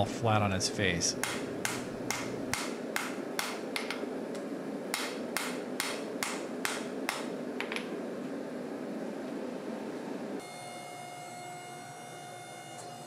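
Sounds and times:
hammer striking hot steel on anvil: 0:01.2 - 0:04.0, 0:04.9 - 0:07.3.

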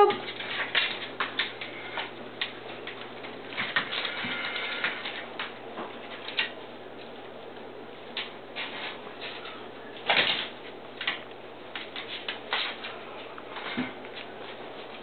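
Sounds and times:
dog claws clicking on tile: 0:00.2 - 0:06.6.

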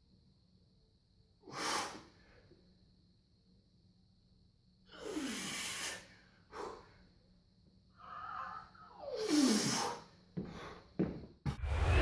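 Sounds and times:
strained exhale: 0:01.4 - 0:02.4, 0:04.9 - 0:07.0, 0:09.2 - 0:10.9.

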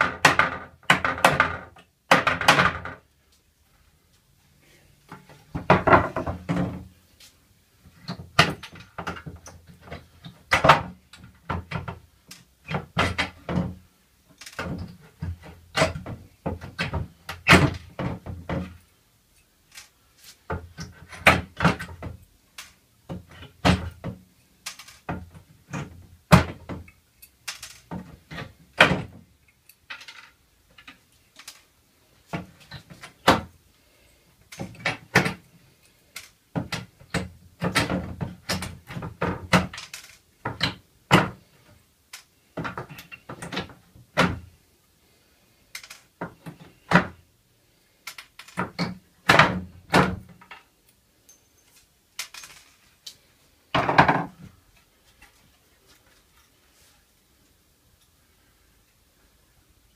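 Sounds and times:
wood boards knocking on workbench: 0:05.5 - 0:06.8, 0:53.8 - 0:54.4.

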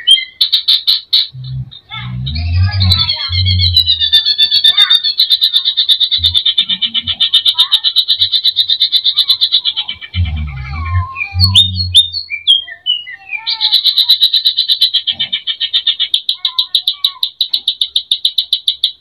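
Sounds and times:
bird singing rapid notes and whistles: 0:00.0 - 0:19.0
low rumble: 0:01.4 - 0:04.2, 0:10.1 - 0:12.2.

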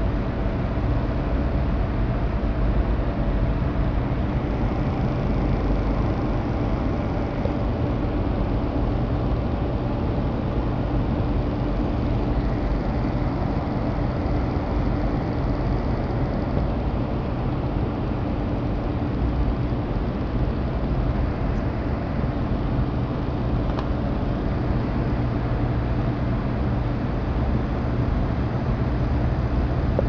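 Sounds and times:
low even hum: 0:00.0 - 0:30.0.

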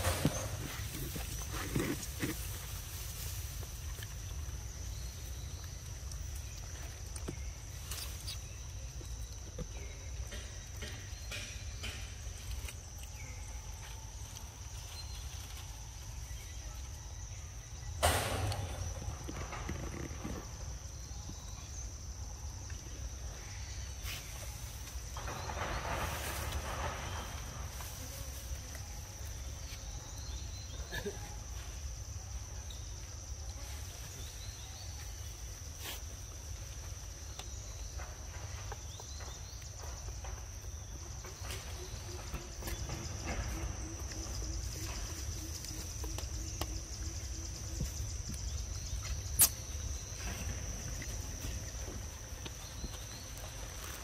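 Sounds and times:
rustling: 0:00.0 - 0:09.0
sharp knock: 0:18.0 - 0:19.0.

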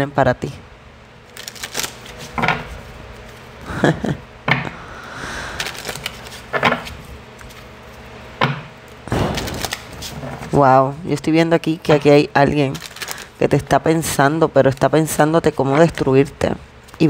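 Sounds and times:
cards sliding: 0:05.5 - 0:08.0, 0:09.1 - 0:10.4
cards clacking together: 0:09.2 - 0:10.1, 0:12.7 - 0:13.3.

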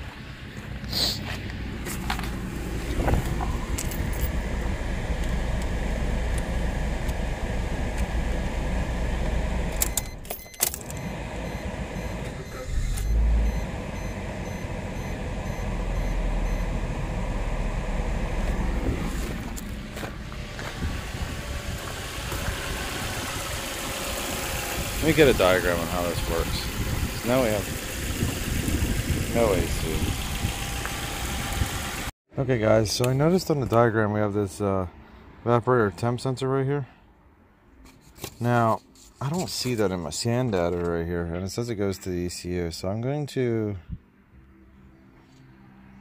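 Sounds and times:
car engine idling: 0:02.0 - 0:32.1.

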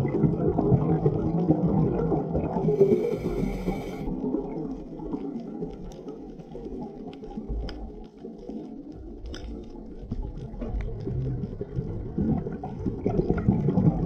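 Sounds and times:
diving regulator hiss: 0:02.6 - 0:04.1.

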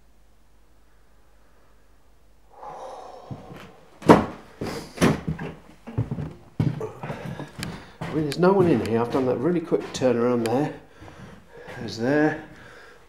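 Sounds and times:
hurried footsteps on hard floor: 0:03.3 - 0:12.8
scuffing: 0:03.3 - 0:12.8
loud uneven knocks and thuds: 0:04.0 - 0:10.0.

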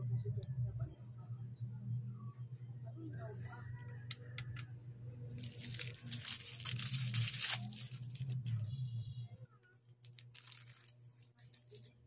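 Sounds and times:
low hum: 0:00.0 - 0:11.8
plastic packaging crinkling: 0:05.4 - 0:08.7, 0:09.8 - 0:12.0.

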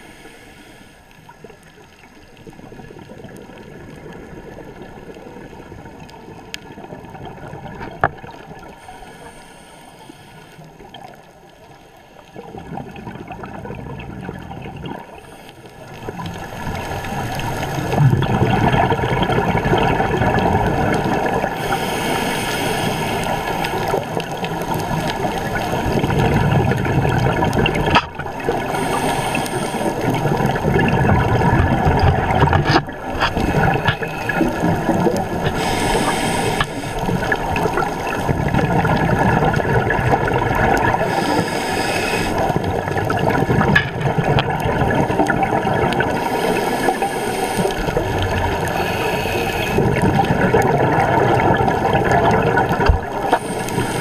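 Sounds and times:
underwater water rushing: 0:00.0 - 0:54.0
diver exhalation bubbles: 0:17.8 - 0:21.6, 0:47.7 - 0:53.5.

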